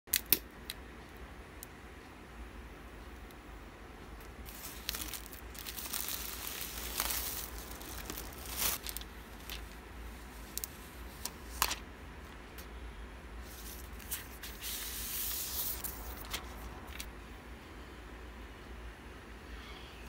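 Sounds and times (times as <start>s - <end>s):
plastic wrap tearing and crinkling: 4.5s - 9.8s, 10.4s - 11.8s.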